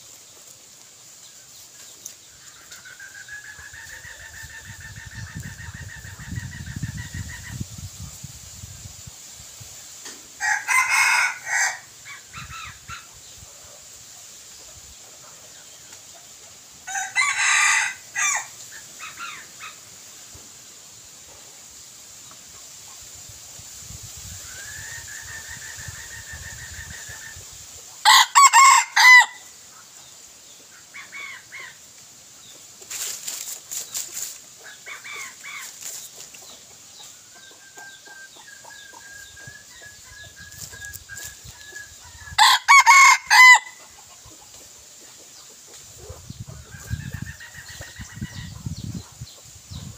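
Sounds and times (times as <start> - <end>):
roosters crowing: 10.4 - 13.0, 16.8 - 19.8, 28.0 - 29.6, 38.1 - 44.0
soft clucks and calls: 24.2 - 49.9.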